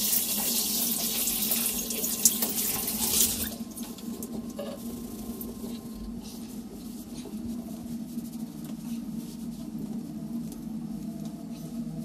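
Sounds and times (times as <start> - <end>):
shower water spraying: 0.0 - 3.6.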